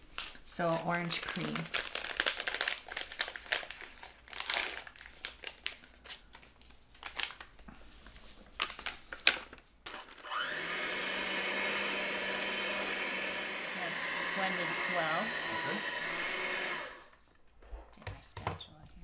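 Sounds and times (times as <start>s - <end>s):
plastic packet crinkling: 0.1s - 7.7s
electric hand mixer humming: 10.2s - 17.2s.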